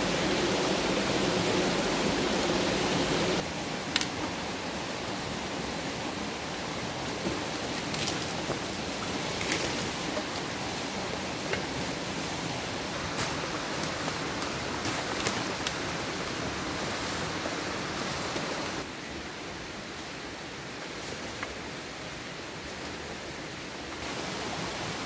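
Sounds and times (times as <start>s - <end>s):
stream water flowing: 0.0s - 25.0s
dry leaves and twigs crackling: 7.2s - 11.8s, 13.0s - 16.2s.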